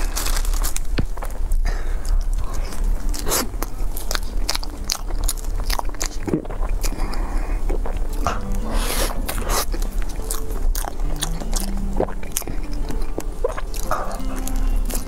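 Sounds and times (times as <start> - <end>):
crunchy chewing of cake: 0.0 - 15.0.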